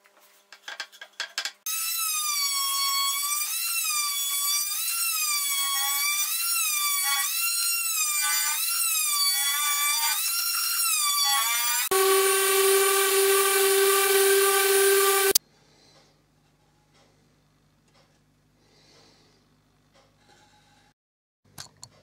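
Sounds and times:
oscillating multitool whining: 0:11.8 - 0:15.4.

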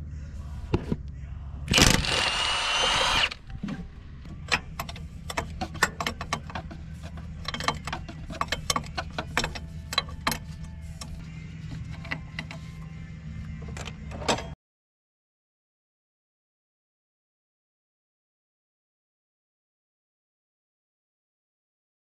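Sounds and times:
steady low hum: 0:00.0 - 0:14.2
metallic clicks of tools: 0:04.2 - 0:11.2.

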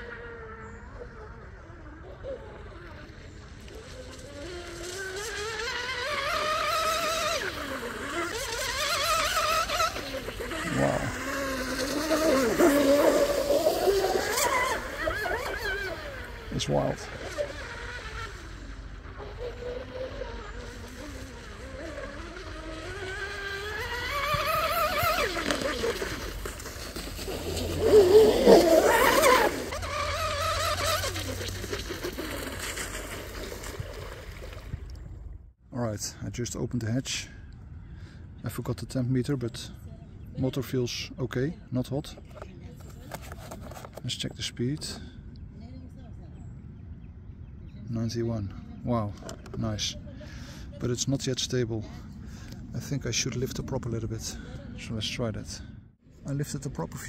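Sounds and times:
rc boat motor whine: 0:00.0 - 0:35.5.

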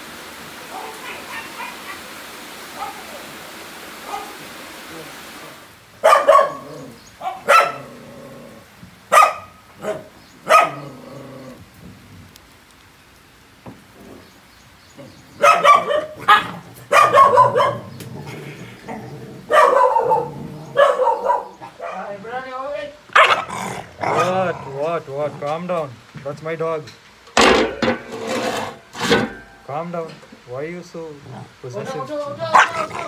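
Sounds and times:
dogs barking: 0:00.6 - 0:03.3, 0:04.0 - 0:04.5, 0:05.9 - 0:11.3, 0:15.0 - 0:22.2, 0:23.1 - 0:24.5, 0:32.4 - 0:33.0.

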